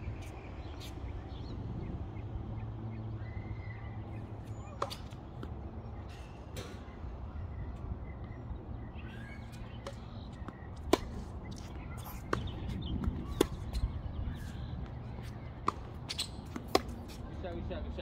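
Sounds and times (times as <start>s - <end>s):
racket hitting tennis ball: 4.7s - 5.5s, 9.6s - 17.3s.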